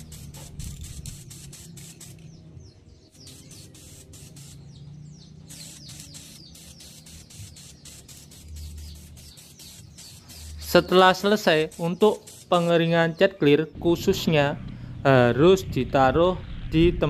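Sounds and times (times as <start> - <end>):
aerosol spray can hissing: 0.0 - 2.4, 3.1 - 12.9
birds chirping: 0.0 - 17.0.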